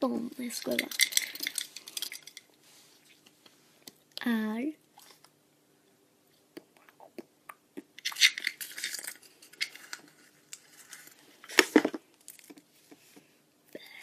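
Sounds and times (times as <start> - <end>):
paper rustling: 8.2 - 12.5.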